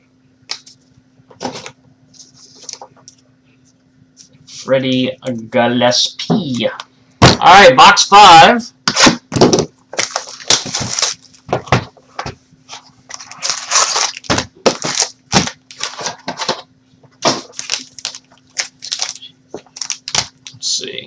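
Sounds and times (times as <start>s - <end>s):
plastic wrapping crackling and tearing: 9.9s - 11.5s, 12.7s - 16.5s, 17.2s - 20.7s.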